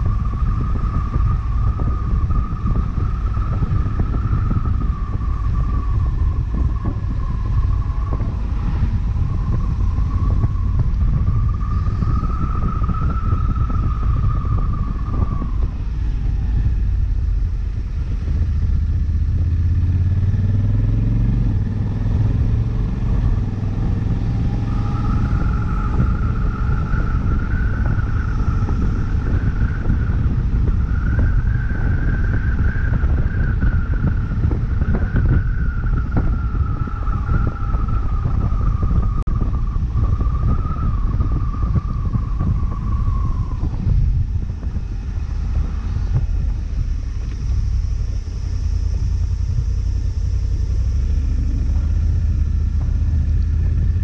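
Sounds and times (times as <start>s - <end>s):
low rumble: 0.0s - 54.0s
wavering high whine: 0.0s - 54.0s
motorcycle engine running: 16.0s - 30.8s, 43.6s - 54.0s.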